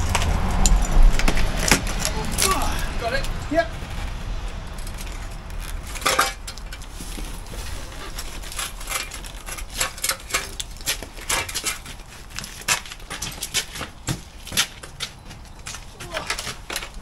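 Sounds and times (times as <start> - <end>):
frame and brick clinking: 4.5 - 17.0.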